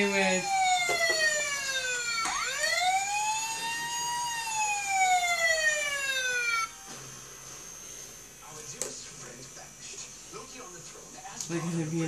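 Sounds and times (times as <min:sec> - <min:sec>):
toy electronic siren wailing: 0:00.0 - 0:06.8.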